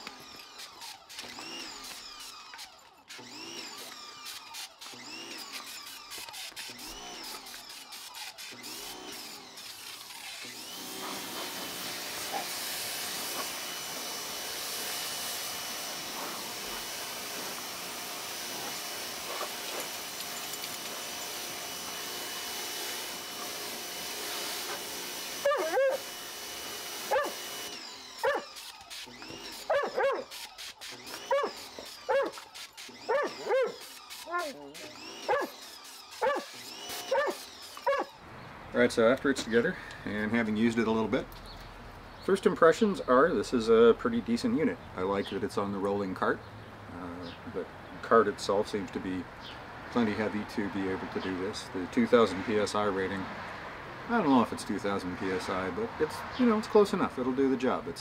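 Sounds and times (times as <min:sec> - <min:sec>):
pressure washer whine and spray: 0:00.0 - 0:37.9
dog barking: 0:25.4 - 0:26.0, 0:27.1 - 0:27.4, 0:28.2 - 0:28.5, 0:29.7 - 0:30.3, 0:31.3 - 0:31.5, 0:32.1 - 0:32.4, 0:33.1 - 0:33.8, 0:35.3 - 0:35.5, 0:36.2 - 0:36.5, 0:37.1 - 0:38.1.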